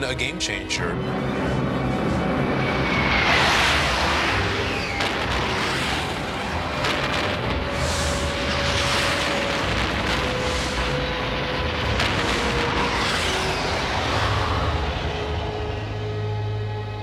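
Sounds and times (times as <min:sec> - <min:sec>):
droning bomber engines: 0:00.0 - 0:17.0
jet whooshing past: 0:01.2 - 0:16.4
rumbling booms: 0:03.9 - 0:15.9.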